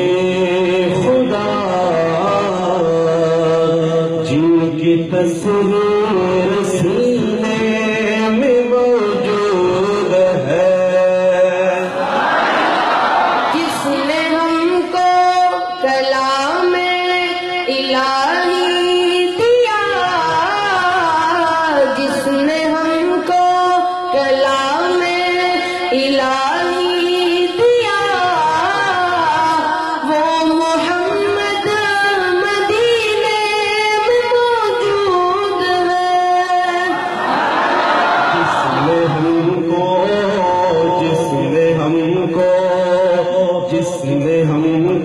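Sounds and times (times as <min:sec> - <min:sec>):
boy singing unaccompanied: 0:13.6 - 0:37.0.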